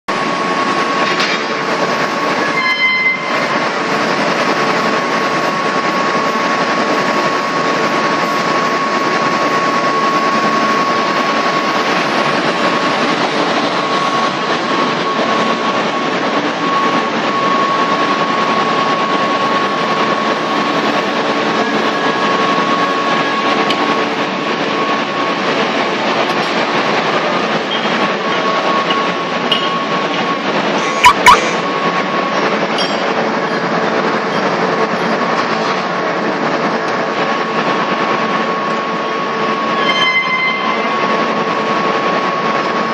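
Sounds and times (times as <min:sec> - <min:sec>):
gas burner and blower rushing: 0:00.1 - 0:39.9
short high-pitched tone: 0:02.4 - 0:03.5, 0:30.8 - 0:31.6, 0:39.8 - 0:41.0.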